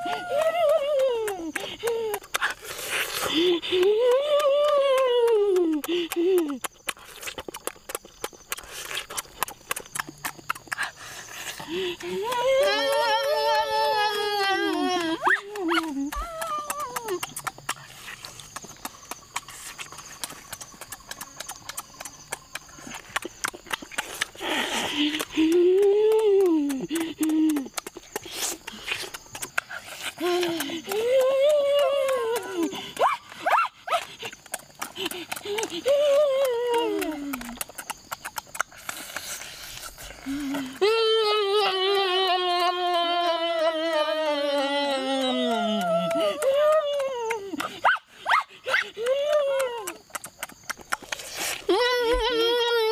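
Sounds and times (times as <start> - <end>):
person humming mmm: 0.0 - 7.6, 11.5 - 17.7, 22.4 - 33.1, 34.2 - 47.7, 48.9 - 50.3, 51.1 - 52.9
chewing and lip-smacking: 0.0 - 13.0, 14.4 - 40.9, 43.7 - 51.8.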